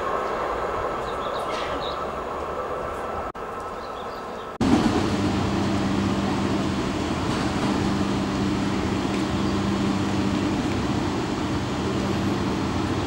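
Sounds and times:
approaching train rumble: 0.0s - 13.0s
train equipment humming: 4.6s - 13.0s.

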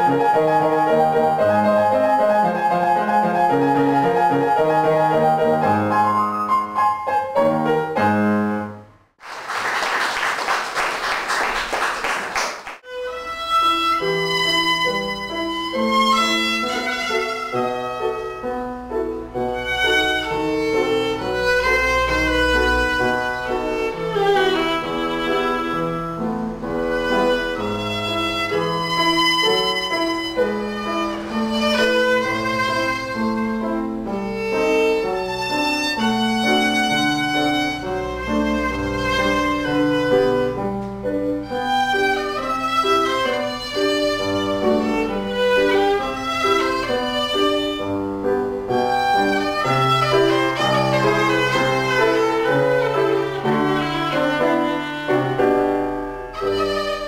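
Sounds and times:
upright piano playing: 0.0s - 9.0s, 12.8s - 57.0s
audience applause: 9.2s - 12.8s
solo violin bowed: 12.8s - 57.0s.

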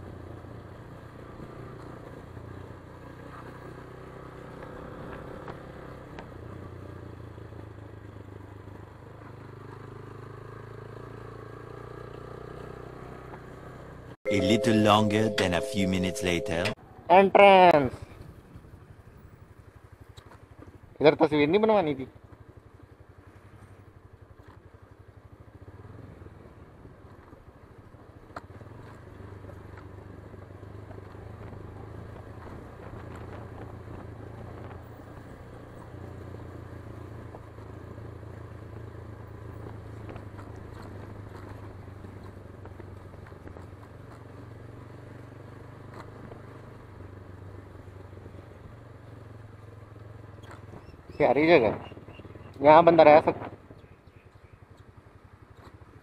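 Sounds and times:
motorcycle engine running slowly: 22.1s - 56.0s.

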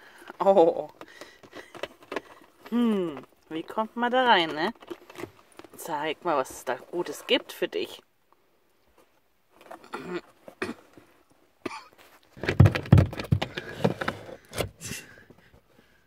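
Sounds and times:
plastic box crackling: 0.0s - 7.7s, 12.0s - 14.6s
knocks on plastic box: 12.4s - 13.6s.

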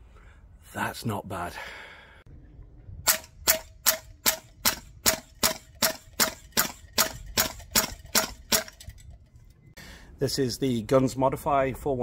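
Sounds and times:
airsoft rifle shots: 3.1s - 8.8s.

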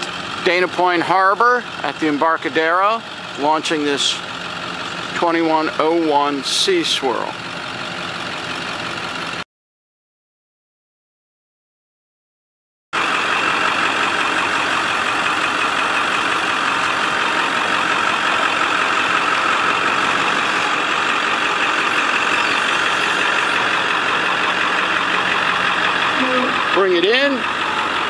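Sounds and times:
pickup truck engine idling: 0.0s - 9.4s, 13.0s - 28.0s.

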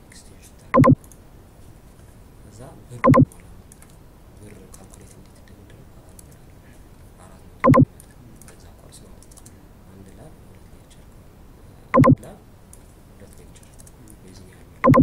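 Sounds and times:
faint keyboard typing and clicking: 0.5s - 1.2s, 3.0s - 6.6s, 7.6s - 10.7s, 12.0s - 15.0s
short loud pitched blips: 0.8s - 1.0s, 3.0s - 3.3s, 7.6s - 7.9s, 12.0s - 12.2s.

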